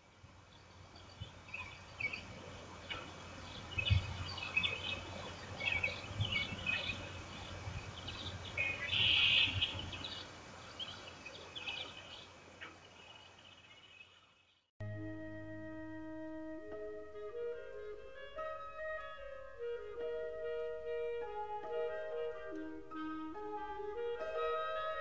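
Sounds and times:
songbirds chirping and trilling: 0:00.1 - 0:14.6.

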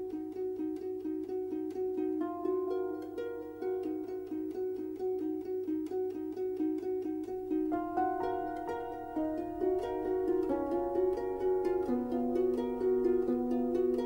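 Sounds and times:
instrumental background music: 0:00.0 - 0:14.0.

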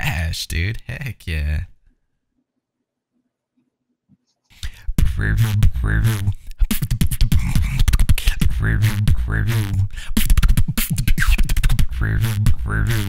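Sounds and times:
beatboxing: 0:04.5 - 0:13.0.

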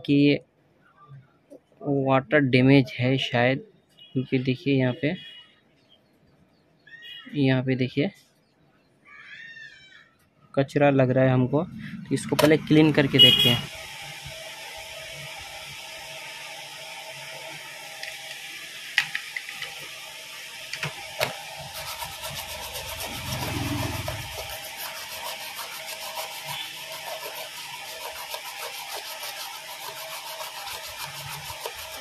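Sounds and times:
stiff brush scrubbing circuit board: 0:11.9 - 0:18.3, 0:20.8 - 0:32.0.

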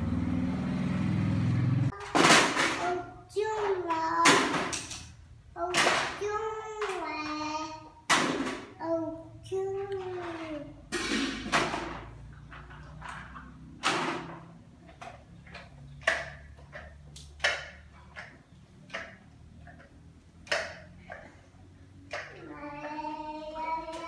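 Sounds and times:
child singing: 0:02.0 - 0:04.8, 0:05.6 - 0:08.0, 0:08.8 - 0:10.7, 0:22.3 - 0:24.0.

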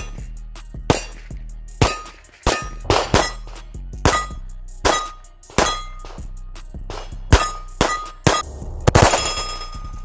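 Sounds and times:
pistol shots: 0:01.8 - 0:03.4.

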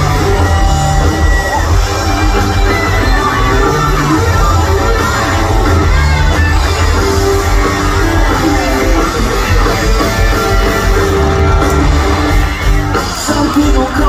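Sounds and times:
live rock band instrumental: 0:00.0 - 0:14.0.

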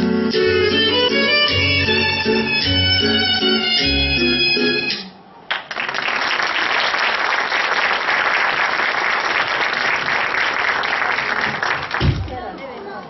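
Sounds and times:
audience applauding: 0:05.5 - 0:12.2.

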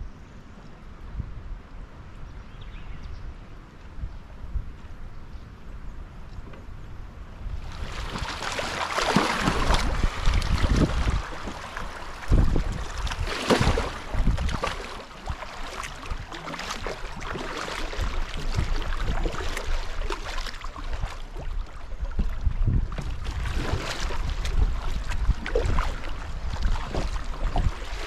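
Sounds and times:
wind rumble on microphone: 0:00.0 - 0:28.0
paddle strokes splashing: 0:07.5 - 0:28.0
rushing water: 0:07.5 - 0:28.0.

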